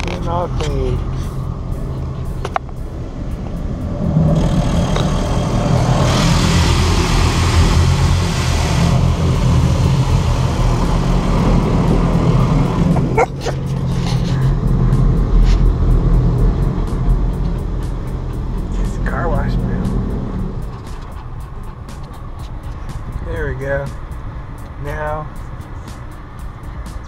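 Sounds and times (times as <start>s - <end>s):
low rumble of wash machinery: 5.2s - 13.4s
water spray hissing on car: 5.5s - 12.5s.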